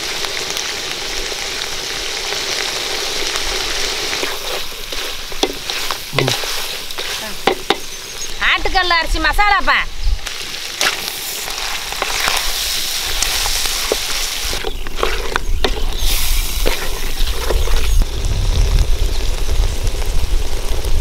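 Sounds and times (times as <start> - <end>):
chicken sizzling in a pan: 0.0 - 21.0
spatula scraping a pan: 4.2 - 7.9, 10.8 - 18.0.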